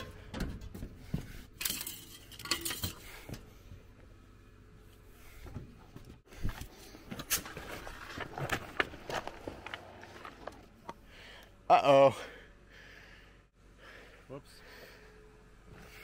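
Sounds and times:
metallic clanks and knocks: 0.0s - 3.5s
people clambering over loose rock: 5.4s - 11.0s.

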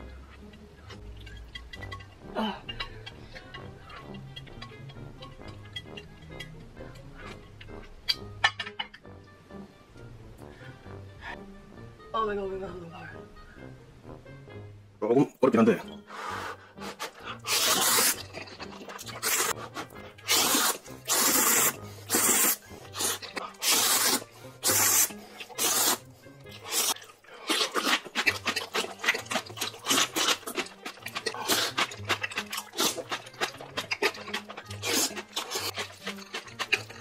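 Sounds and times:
man slurping noodles: 16.2s - 37.0s.

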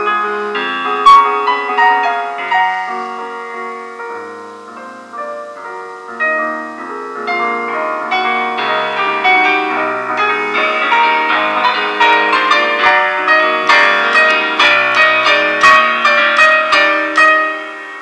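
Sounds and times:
solo piano playing: 0.0s - 18.0s.

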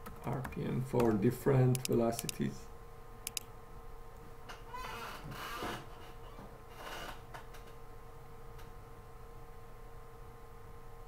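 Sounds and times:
electrical hum: 0.0s - 11.0s
computer mouse clicks: 1.0s - 2.4s, 3.3s - 3.5s.

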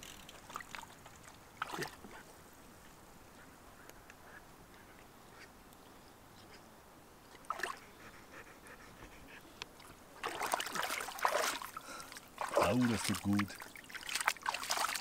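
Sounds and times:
water lapping: 0.2s - 2.4s, 7.3s - 15.0s
dog splashing in water: 1.6s - 2.1s, 7.5s - 7.8s, 10.2s - 11.8s, 12.4s - 15.0s.

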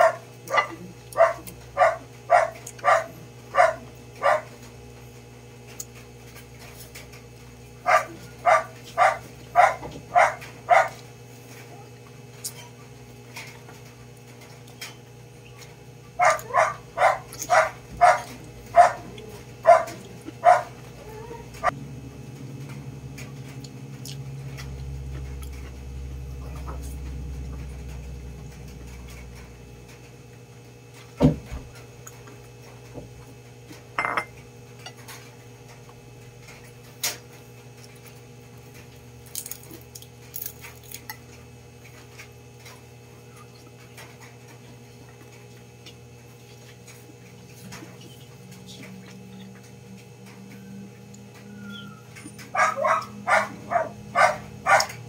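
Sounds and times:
low steady hum: 0.0s - 55.0s
tableware clinking: 34.0s - 34.3s.

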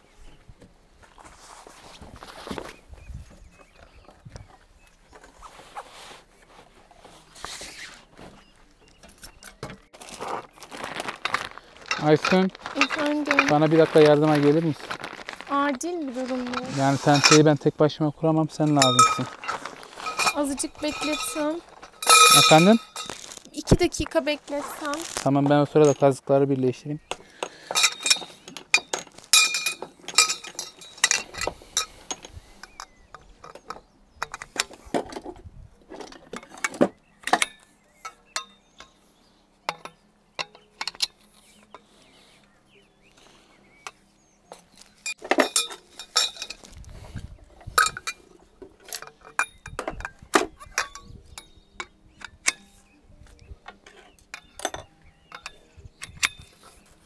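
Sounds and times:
metal parts clinking and knocking: 10.7s - 14.2s, 14.9s - 17.6s, 18.6s - 24.2s, 27.1s - 35.3s, 39.7s - 41.9s, 43.8s - 46.8s, 47.6s - 52.8s, 53.6s - 57.0s.

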